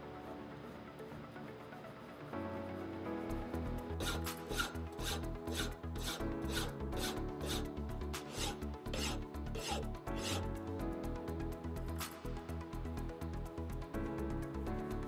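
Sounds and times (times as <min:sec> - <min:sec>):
file rasping on copper: 0:04.0 - 0:10.5.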